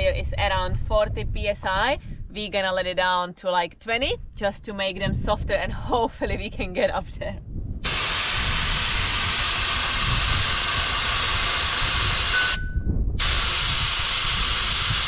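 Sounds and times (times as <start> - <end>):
air hissing out of a tyre: 7.8 - 12.6, 13.2 - 15.0
short thin whistle: 12.2 - 12.9.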